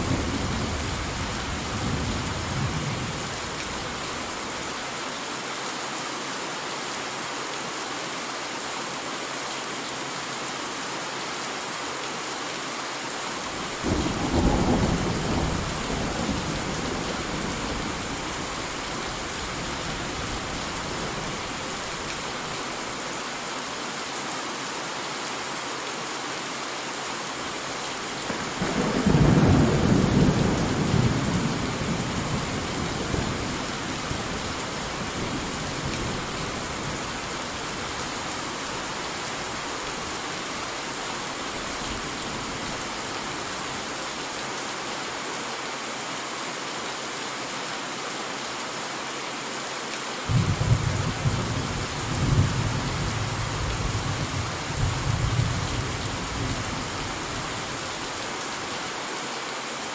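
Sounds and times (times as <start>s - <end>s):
steady rain: 0.0s - 59.9s
thunder rumbling: 50.3s - 56.9s.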